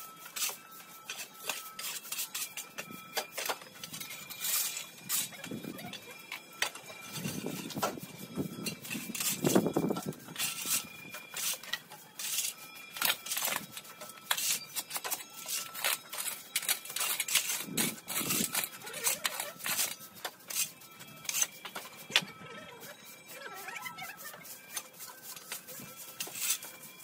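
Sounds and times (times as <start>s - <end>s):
stiff brooms sweeping: 0.1s - 27.0s
shovel scraping rubble: 0.3s - 6.0s, 8.6s - 22.9s.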